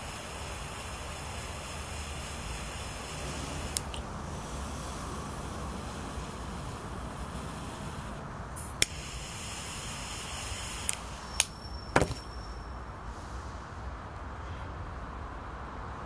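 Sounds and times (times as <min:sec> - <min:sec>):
lighter clicking: 0:00.0 - 0:04.1, 0:06.2 - 0:12.2
gas flame hissing: 0:00.0 - 0:13.7
thin gas whistle: 0:00.0 - 0:13.8
traffic noise: 0:00.0 - 0:16.0.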